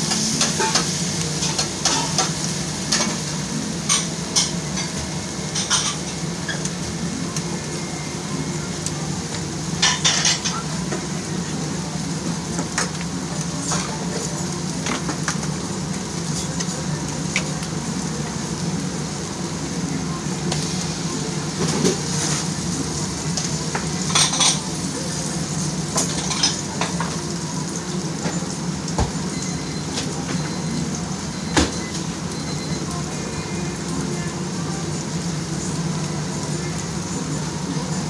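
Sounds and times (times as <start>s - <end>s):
noisy background: 0.0s - 38.0s
dishes and cutlery clinking: 3.8s - 6.7s, 9.8s - 10.7s, 23.8s - 24.7s, 25.9s - 27.1s.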